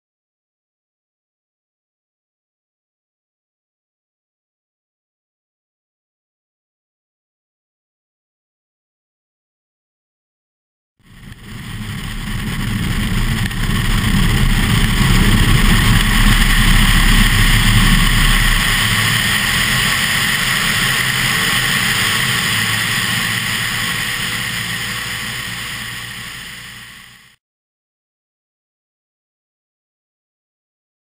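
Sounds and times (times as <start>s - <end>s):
airplane engine drone: 11.0s - 27.4s
wind rushing: 11.1s - 27.2s
low buffeting rumble: 11.1s - 27.3s.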